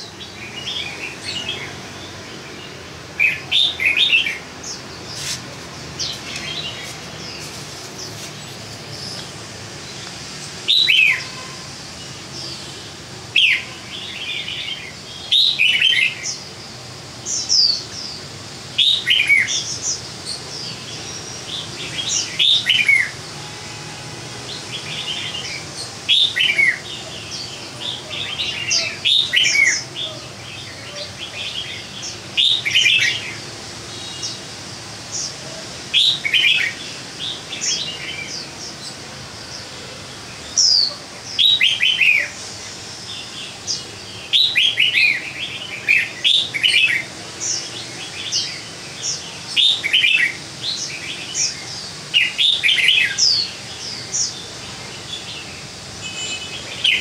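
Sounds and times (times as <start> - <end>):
bird singing whistled notes: 10.6 - 11.6, 18.8 - 33.4, 43.2 - 54.5.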